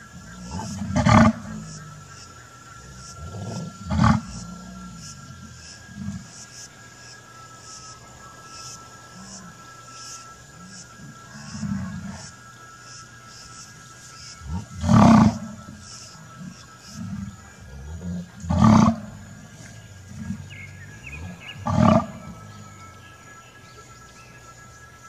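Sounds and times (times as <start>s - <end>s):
faint steady high tone: 0.0s - 25.0s
loud roar-like animal calls: 14.4s - 15.6s, 16.4s - 22.4s.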